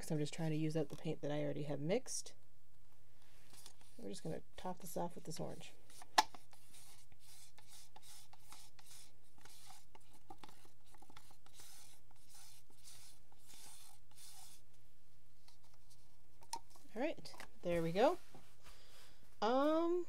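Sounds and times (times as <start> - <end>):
low electrical hum: 0.0 - 20.0
stick scraping paint in cup: 5.9 - 14.6.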